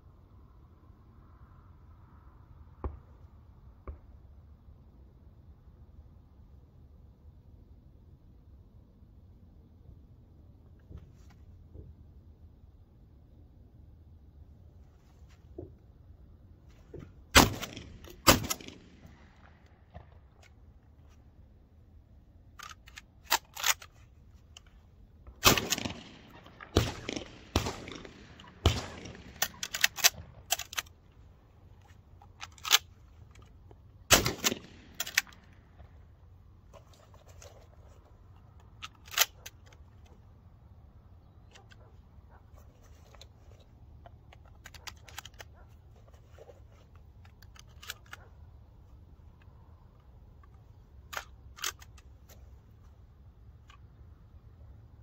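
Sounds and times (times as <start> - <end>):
shotgun shots with echo: 25.4 - 29.7, 34.1 - 35.0.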